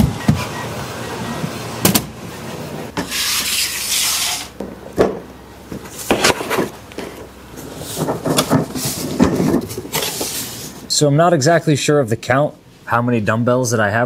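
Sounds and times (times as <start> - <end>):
scraping and rubbing: 3.0 - 4.6, 5.9 - 10.9.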